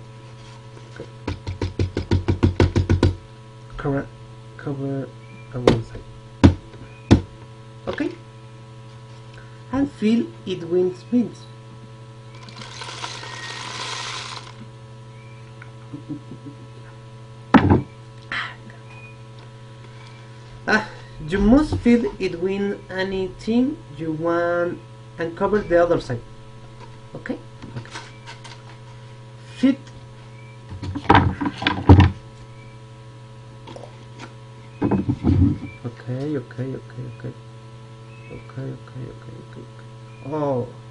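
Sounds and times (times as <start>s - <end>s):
mains hum: 0.0s - 40.9s
beans pouring into cardboard tube: 12.4s - 14.6s
loud thump: 17.5s - 17.9s.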